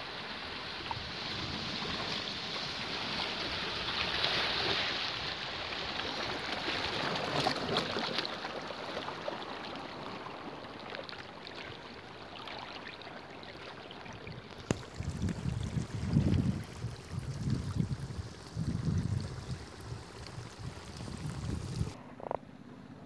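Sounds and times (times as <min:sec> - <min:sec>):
water lapping over rocks: 0:00.2 - 0:22.0
low rumbling bumps: 0:14.7 - 0:22.0.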